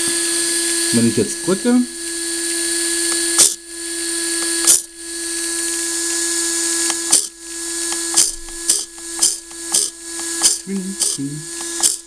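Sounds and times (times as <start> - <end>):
small electric motor whining: 0.0 - 12.0
sharp clicks: 6.8 - 12.0.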